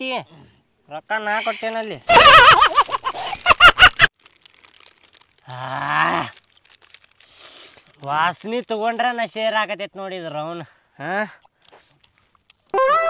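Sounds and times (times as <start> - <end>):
men laughing loudly: 2.0 - 4.1.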